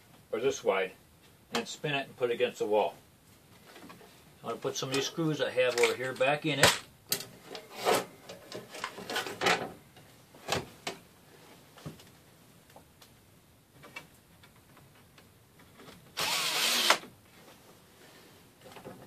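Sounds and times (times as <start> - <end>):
cordless drill driving a screw: 16.2 - 17.0.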